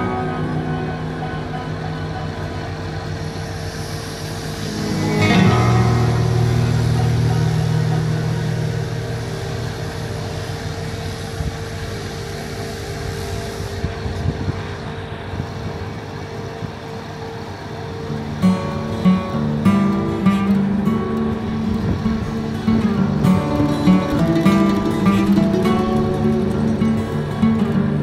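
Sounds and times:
plucked guitar music: 0.0s - 2.0s, 4.6s - 11.0s, 18.1s - 28.0s
construction machinery engine drone: 0.0s - 28.0s.

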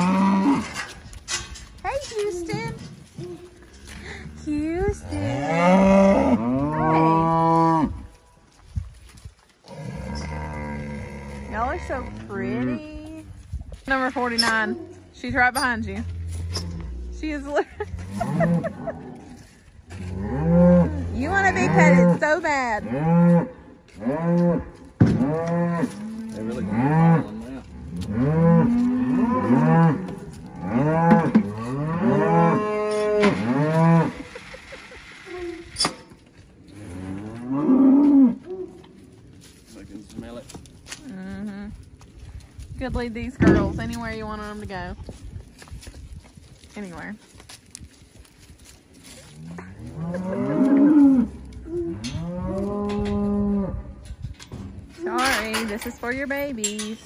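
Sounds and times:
cows mooing: 0.0s - 0.9s, 3.6s - 8.0s, 9.7s - 13.0s, 14.4s - 36.0s, 36.7s - 38.8s, 49.3s - 53.8s.

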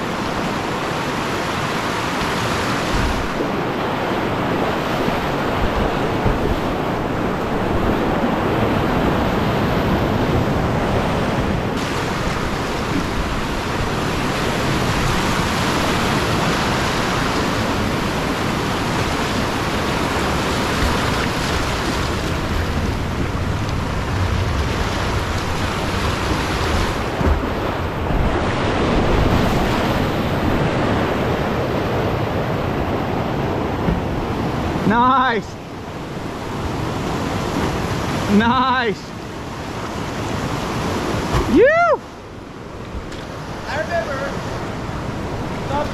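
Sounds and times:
whitewater rapids rushing: 0.0s - 45.9s.

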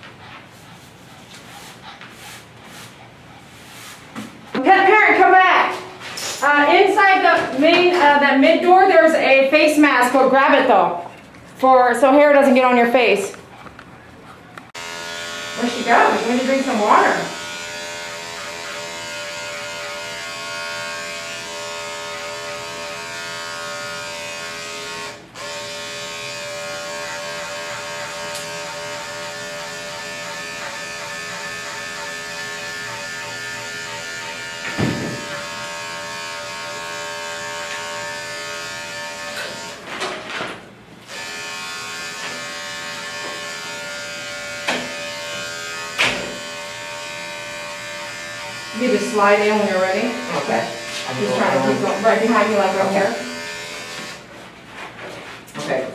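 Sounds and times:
electric clipper buzzing: 4.5s - 10.6s, 14.7s - 40.2s, 41.0s - 54.3s
sharp knocks: 34.7s - 35.5s.

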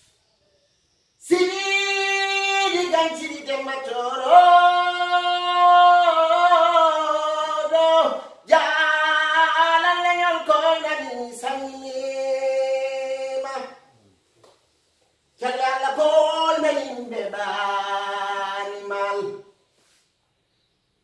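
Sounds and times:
man singing solo: 1.2s - 13.8s, 15.4s - 19.5s.

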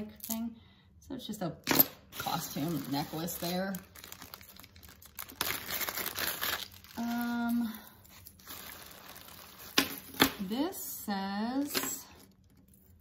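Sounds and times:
plastic bag crinkling: 2.2s - 10.3s.

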